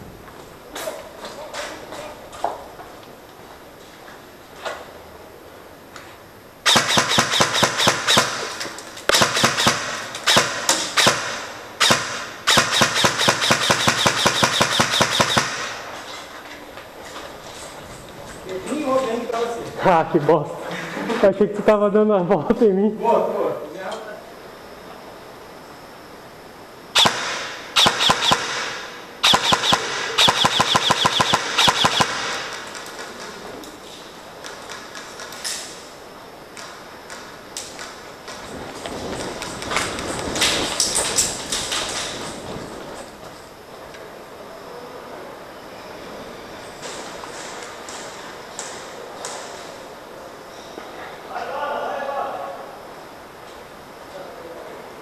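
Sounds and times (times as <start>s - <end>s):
airsoft rifle firing rapid shots: 6.6s - 15.9s, 27.0s - 33.1s.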